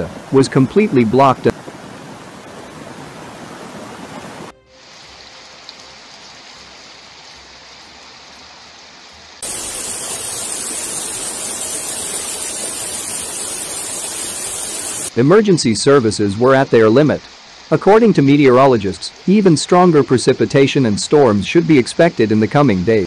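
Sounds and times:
rushing floodwater: 0.0 - 8.2
rain: 0.0 - 23.0.

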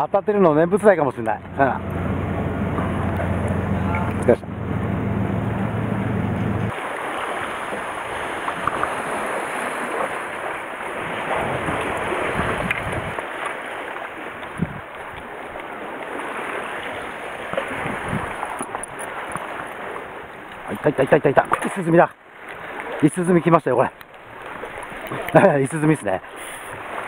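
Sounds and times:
sea water washing: 0.0 - 27.0
ferry engine droning: 0.4 - 6.7
wind buffeting microphone: 10.9 - 13.4, 14.4 - 15.4, 16.1 - 19.5.

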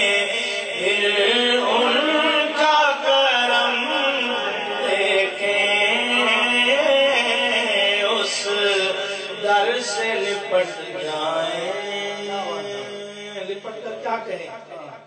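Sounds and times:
man singing in chanting style: 0.0 - 15.0.

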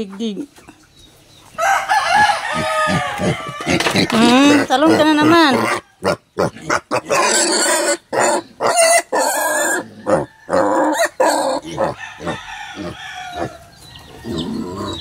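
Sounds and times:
piglets squealing: 2.2 - 13.7.

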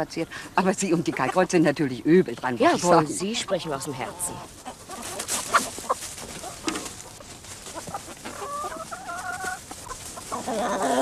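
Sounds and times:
chickens clucking: 0.1 - 11.0
drawn-out chicken call: 2.9 - 11.0.

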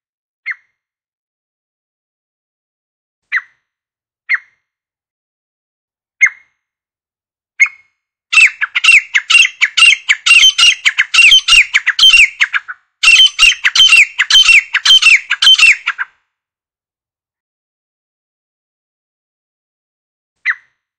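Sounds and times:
francolin calling harsh squawks: 7.6 - 16.1.

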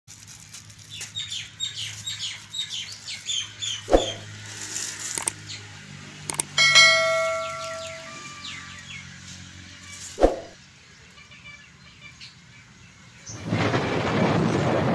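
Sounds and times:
small birds chirping: 0.8 - 4.4, 5.2 - 9.2
sharp thump: 3.9 - 4.2, 10.2 - 10.5
bell-like chime: 6.5 - 8.9.

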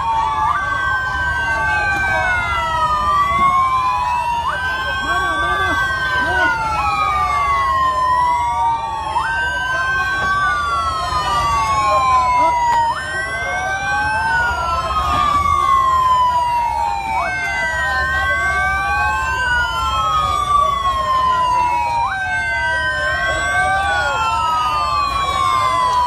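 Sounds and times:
police sirens wailing: 0.0 - 26.0.

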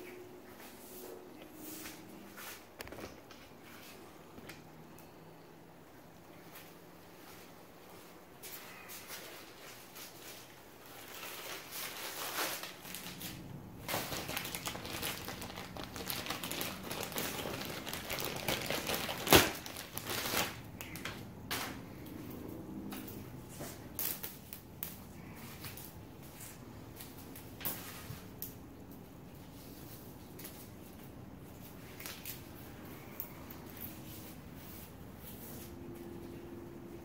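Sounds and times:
cable crinkling and rustling: 0.0 - 5.2, 6.2 - 36.6.

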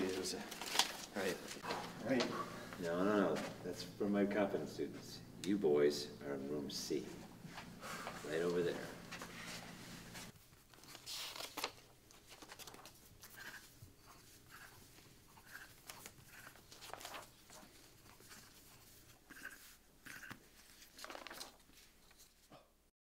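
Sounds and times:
paper rustling: 0.0 - 2.3, 8.4 - 13.6, 15.8 - 19.8, 20.5 - 22.5
pens scratching on paper: 12.4 - 21.5.

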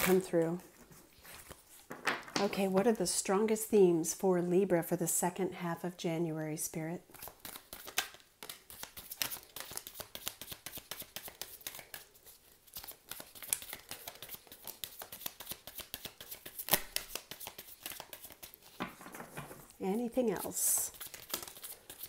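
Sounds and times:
cards being shuffled: 7.1 - 22.0.

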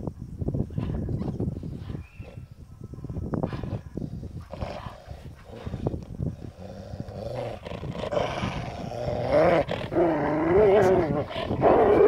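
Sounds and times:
dog play-growling: 6.5 - 12.0.

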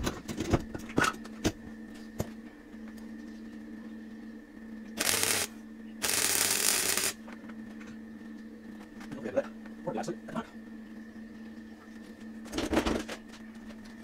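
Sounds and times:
steady background hum: 0.0 - 14.0
welder arc crackling: 5.0 - 7.2.

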